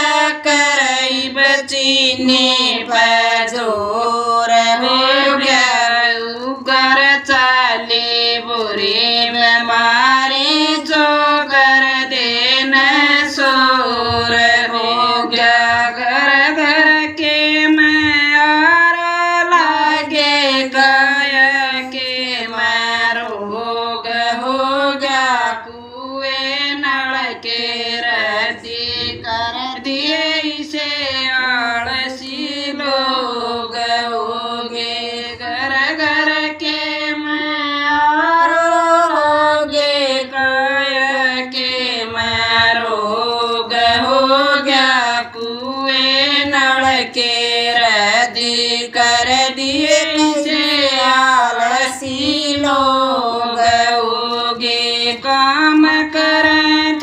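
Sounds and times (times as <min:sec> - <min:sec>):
woman singing folk song: 0:35.0 - 0:57.0.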